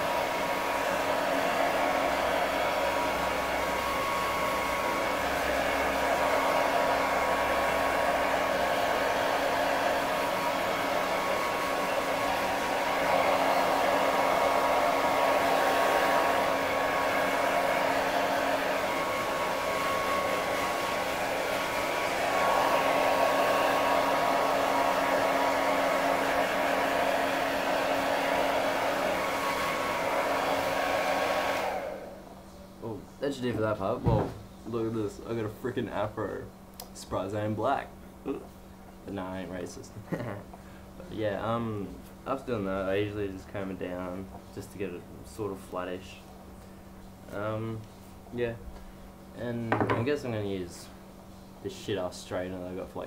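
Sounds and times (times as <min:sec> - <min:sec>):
hair dryer running: 0:00.0 - 0:32.4, 0:40.1 - 0:40.5.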